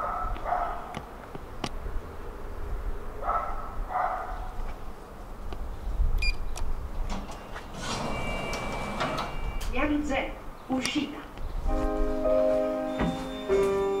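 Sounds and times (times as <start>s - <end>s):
dog barking: 0.0s - 1.0s, 3.2s - 4.6s
lift cabin rumbling: 6.7s - 10.6s
steady high tone: 7.8s - 10.4s, 11.7s - 14.0s.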